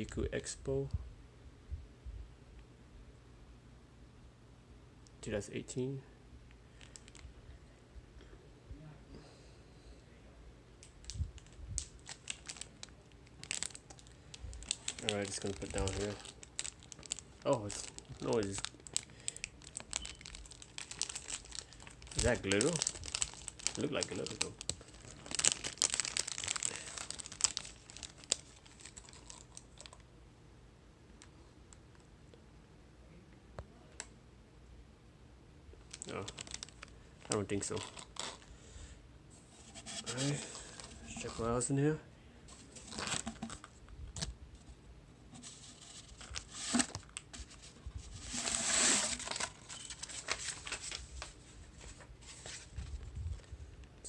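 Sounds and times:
plastic wrapper crinkling: 6.8 - 7.3, 10.8 - 30.0, 35.8 - 38.5, 39.5 - 41.5, 42.5 - 44.4, 45.3 - 53.5.

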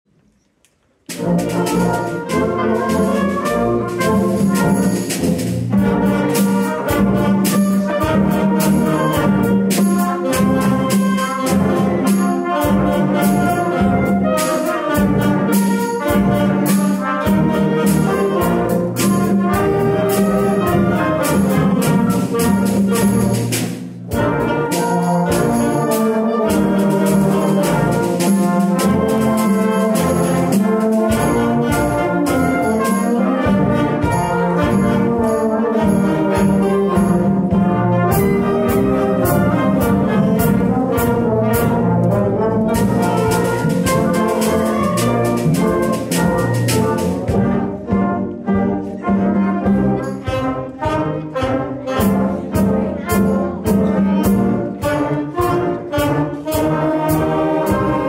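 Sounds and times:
wind band playing: 1.0 - 58.0.

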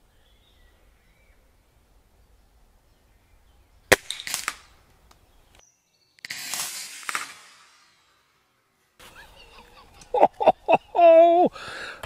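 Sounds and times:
air rifle shot: 3.9 - 4.7, 6.2 - 8.2
quieter cracks: 3.9 - 5.6, 6.2 - 8.3.

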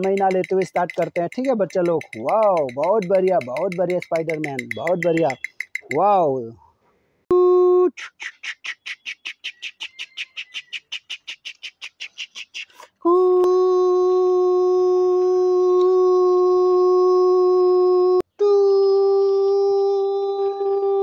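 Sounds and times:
steady whistle tone: 4.7 - 5.9.

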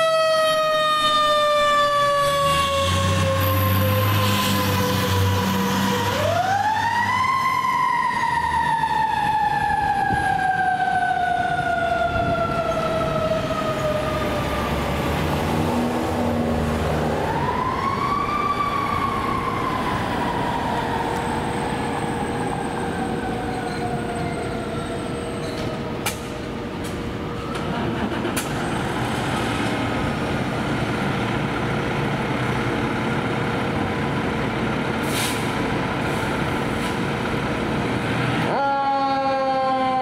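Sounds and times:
mechanical siren wailing: 0.0 - 15.0, 17.0 - 26.0.

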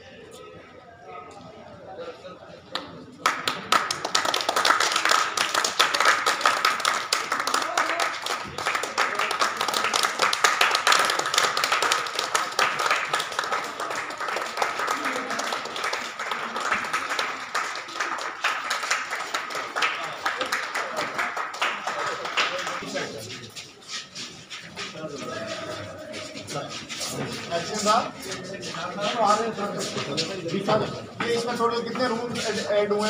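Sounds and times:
group applauding: 2.7 - 33.0
voices: 12.8 - 33.0.

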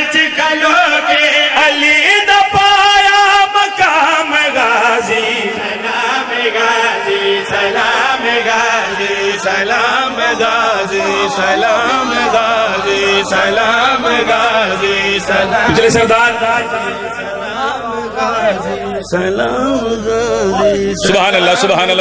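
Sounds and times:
men chanting through microphones: 0.0 - 22.0
man holding wavering high note: 9.5 - 21.7.

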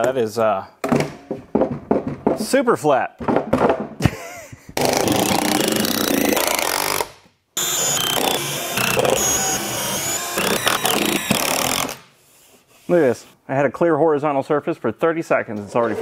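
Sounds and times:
power tool running: 4.8 - 12.0.

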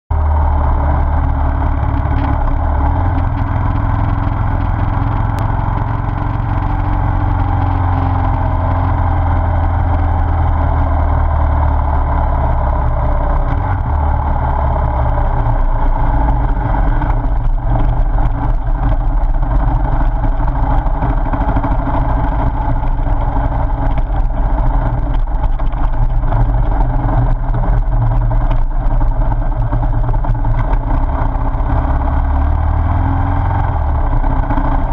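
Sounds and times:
motorcycle engine running: 0.1 - 34.9
wind noise: 0.1 - 34.9
gravel knocks and rattles: 1.2 - 8.9, 16.0 - 31.9.

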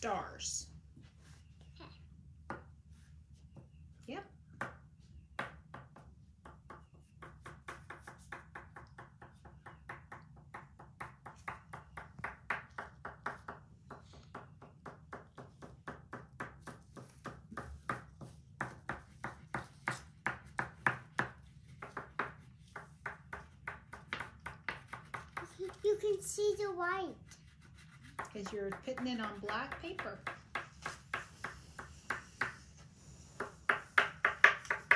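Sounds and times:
oil pastel tapping on paper: 5.4 - 25.8, 28.1 - 32.6.

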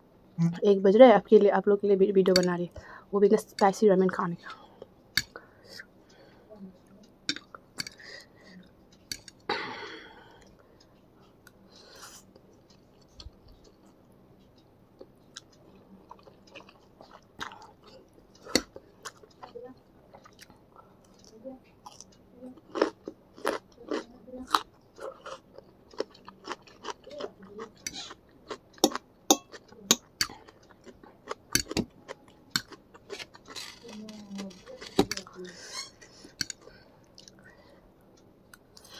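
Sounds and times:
wet chewing of noodles: 10.2 - 38.9.

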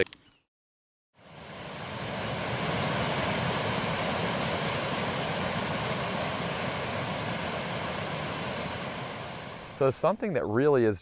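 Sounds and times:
stream rushing over stones: 1.4 - 9.8.

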